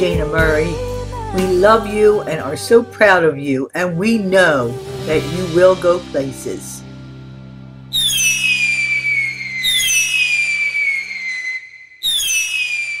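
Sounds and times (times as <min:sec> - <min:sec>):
whistling fireworks: 0:07.9 - 0:13.0.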